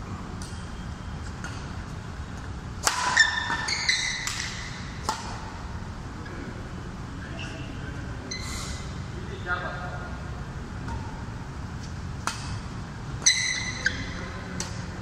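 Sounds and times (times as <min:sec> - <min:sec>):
racket hitting shuttlecock: 0:02.8 - 0:05.7, 0:11.8 - 0:15.0
shoes squeaking on court floor: 0:03.0 - 0:05.0, 0:07.3 - 0:08.9, 0:13.2 - 0:14.4.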